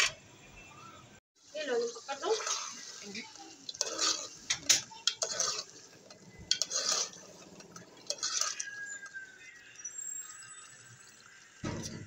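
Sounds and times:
metal spoon scraping a pot: 0:03.6 - 0:09.2.

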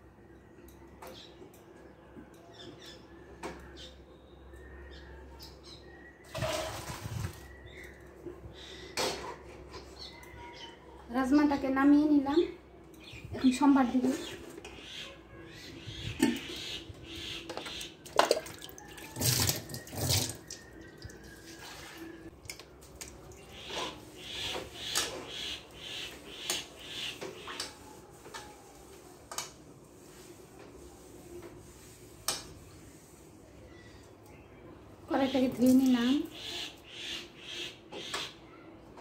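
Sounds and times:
tap water splashing: 0:17.5 - 0:21.2.

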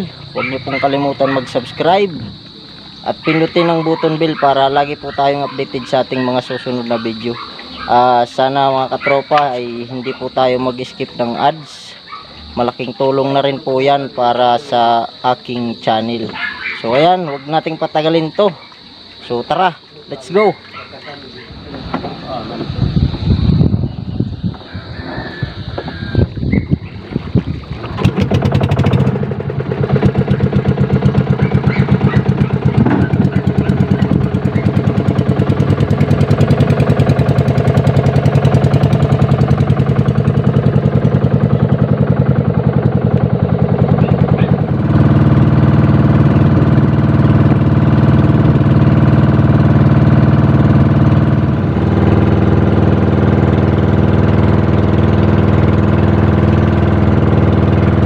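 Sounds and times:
boat engine pulsing: 0:00.0 - 0:58.0.

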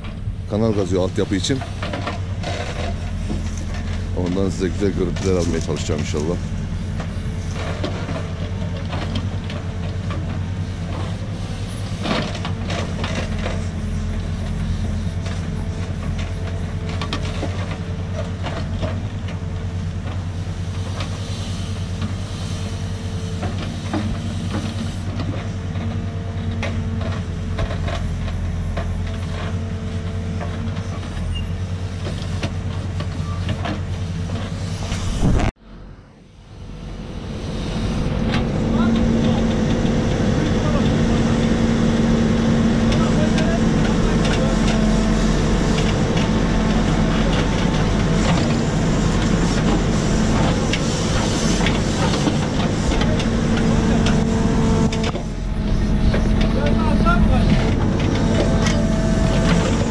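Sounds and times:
diesel engine under load: 0:00.0 - 0:59.9
steady whine: 0:34.6 - 0:59.9.

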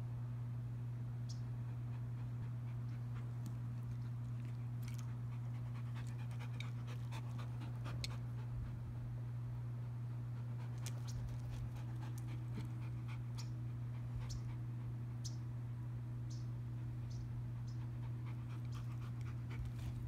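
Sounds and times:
steady low hum: 0:00.0 - 0:20.0
dog panting: 0:01.7 - 0:15.1, 0:17.4 - 0:20.0.

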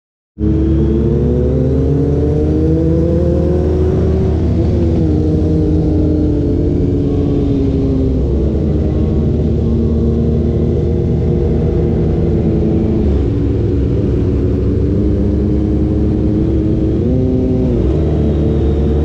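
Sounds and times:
motorcycle engine running: 0:00.4 - 0:19.0
wind rumble on microphone: 0:00.4 - 0:19.0.

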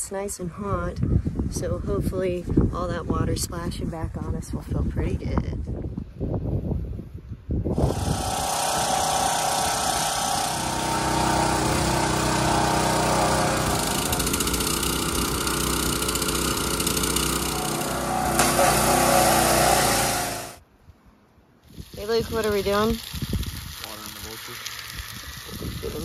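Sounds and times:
pressure washer engine running: 0:07.8 - 0:20.6, 0:22.0 - 0:26.0
spray jet hissing: 0:07.8 - 0:20.6, 0:21.7 - 0:26.0.

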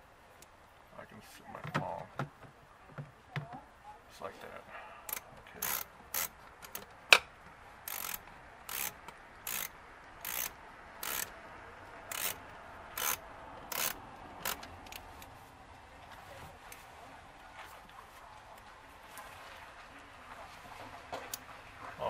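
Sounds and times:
hand ratchet clicking: 0:05.1 - 0:06.8, 0:07.8 - 0:11.3, 0:12.1 - 0:15.0.

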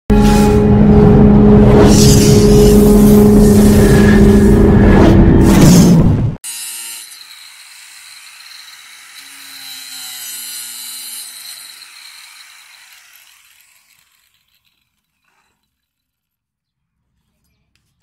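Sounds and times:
angle grinder cutting plastic pipe: 0:06.4 - 0:16.4.

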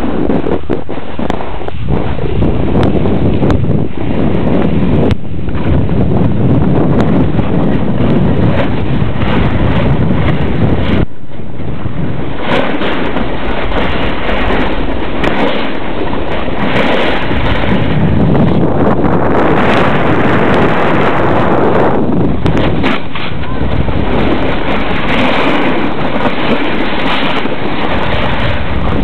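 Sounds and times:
wind buffeting microphone: 0:00.0 - 0:29.0
skis scraping over snow: 0:11.8 - 0:18.5, 0:19.4 - 0:29.0.

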